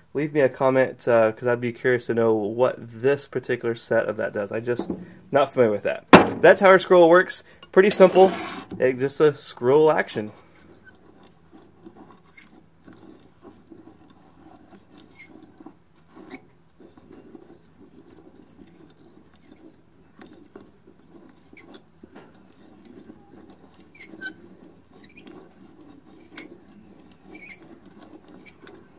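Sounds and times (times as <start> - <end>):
metal-on-metal scraping: 4.6 - 7.1, 7.7 - 9.2, 10.2 - 28.9.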